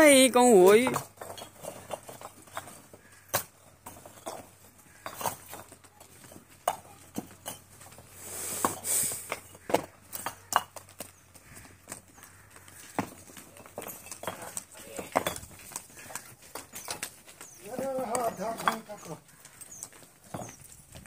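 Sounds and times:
bricks clacking together: 0.8 - 8.0, 8.6 - 11.0, 12.9 - 17.2, 20.2 - 21.0
brief scraping hiss: 8.2 - 9.3.

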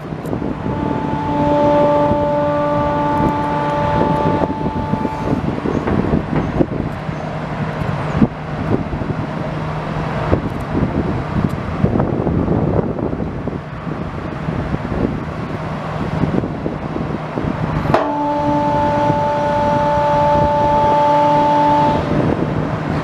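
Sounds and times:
steady whine: 0.0 - 14.5
diesel excavator engine running: 0.0 - 23.0.

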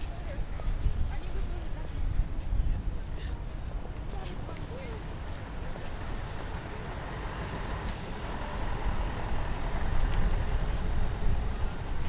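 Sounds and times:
passing motor vehicles rumble: 4.6 - 12.0.

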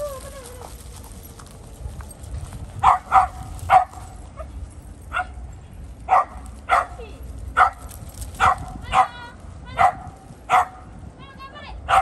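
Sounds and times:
dog barking: 2.8 - 4.0, 5.1 - 5.4, 6.1 - 7.0, 7.6 - 7.8, 9.8 - 10.8.

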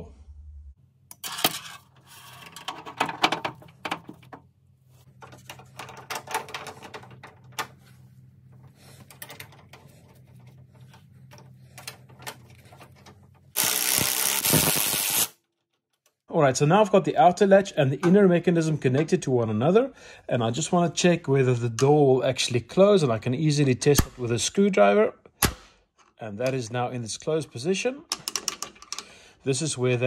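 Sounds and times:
cordless power driver: 13.6 - 15.3.

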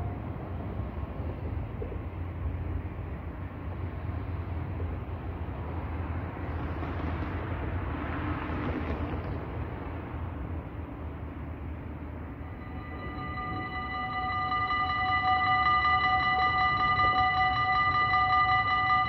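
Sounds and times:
electric train running: 12.2 - 19.0.

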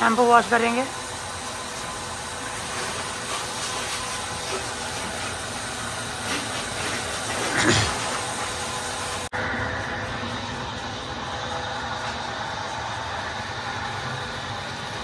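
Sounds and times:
water jet spraying from hose: 0.0 - 9.3.

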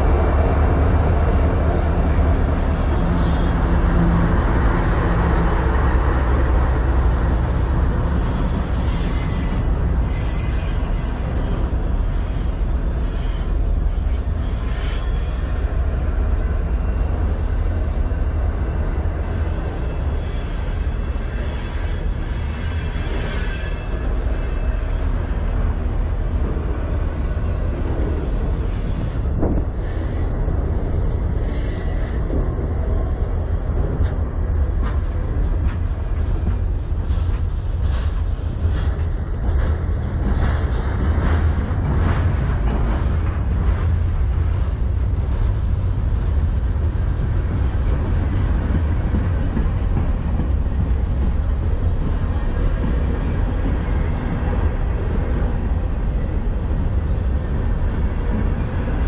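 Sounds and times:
train wheels rumbling on rails: 0.0 - 59.0
high wheel squeal: 1.5 - 3.7, 6.8 - 15.6, 19.2 - 25.2, 28.0 - 32.4, 45.1 - 47.3.

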